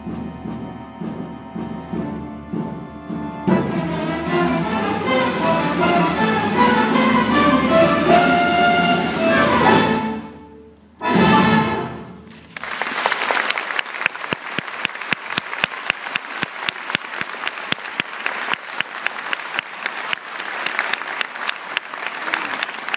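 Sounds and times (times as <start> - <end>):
string orchestra and accordion chord: 0.0 - 12.2
audience applauding: 12.3 - 22.9.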